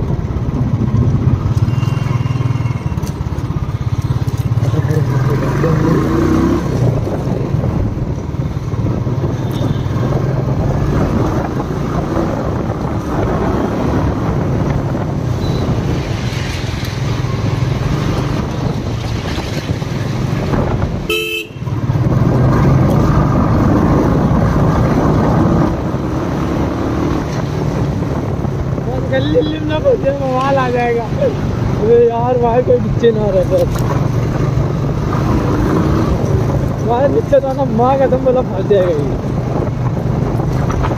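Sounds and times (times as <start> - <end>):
vehicle horns honking: 21.1 - 21.8.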